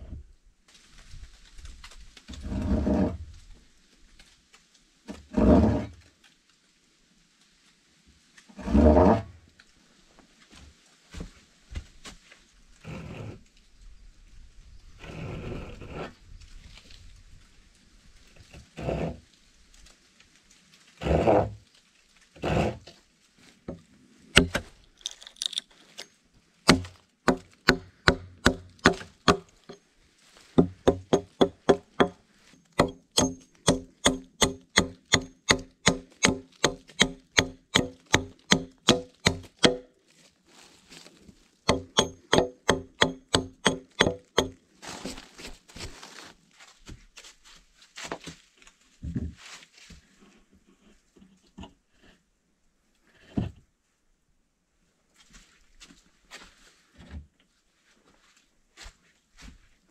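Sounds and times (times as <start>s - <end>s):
rustling: 16.1s - 33.7s, 39.3s - 41.7s, 44.4s - 52.0s
axe chopping into log: 24.4s - 24.7s, 26.7s - 29.5s, 32.8s - 39.9s, 41.7s - 44.6s.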